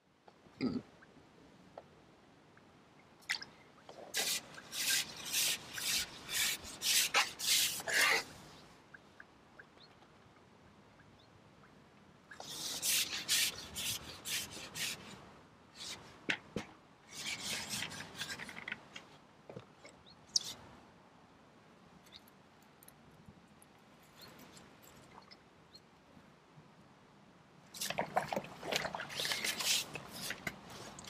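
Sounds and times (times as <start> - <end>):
fishing pole rubbing and scraping: 4.2 - 8.3, 12.4 - 15.2, 17.1 - 18.8, 29.1 - 31.0.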